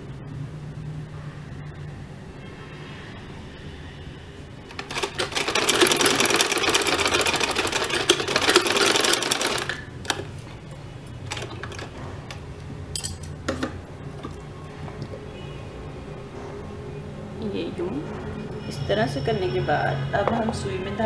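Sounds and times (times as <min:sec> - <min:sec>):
sewing machine stitching: 0:04.7 - 0:10.3, 0:11.3 - 0:12.0.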